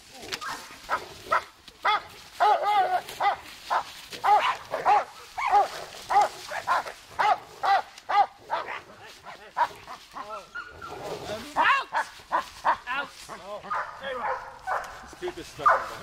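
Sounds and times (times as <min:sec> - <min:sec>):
dog barking: 0:00.4 - 0:08.9, 0:13.6 - 0:16.0.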